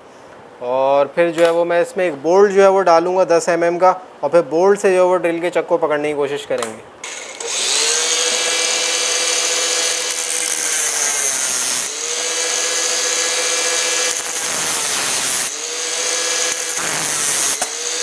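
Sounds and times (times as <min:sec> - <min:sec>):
angle grinder cutting metal: 0:07.0 - 0:18.0.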